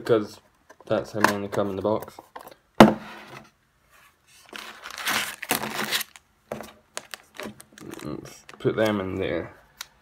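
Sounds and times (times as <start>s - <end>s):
foil packs crinkling: 4.5s - 8.9s.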